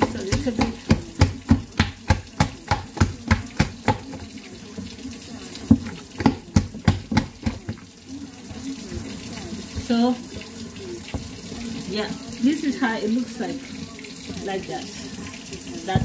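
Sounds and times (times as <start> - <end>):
dough slapping in a bowl: 0.0 - 12.8.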